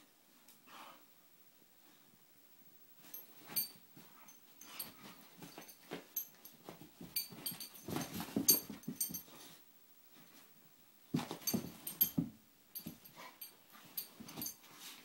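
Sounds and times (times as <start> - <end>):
dogs scuffling and rustling: 3.0 - 9.6, 11.1 - 15.0.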